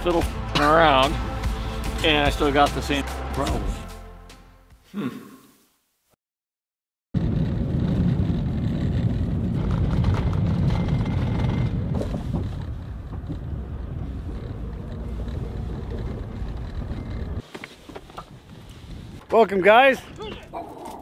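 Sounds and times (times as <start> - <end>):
road and tyre noise in car: 7.2 - 19.3.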